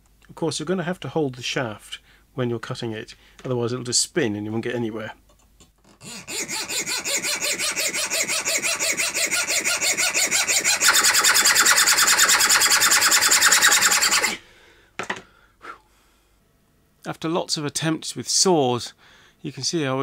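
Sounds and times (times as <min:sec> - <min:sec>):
hacksaw sawing steel: 0:06.0 - 0:14.4.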